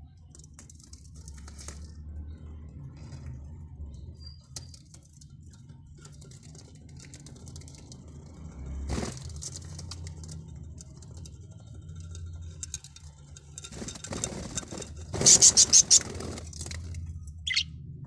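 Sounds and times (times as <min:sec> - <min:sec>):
claws and feathers scratching: 0:08.9 - 0:17.6.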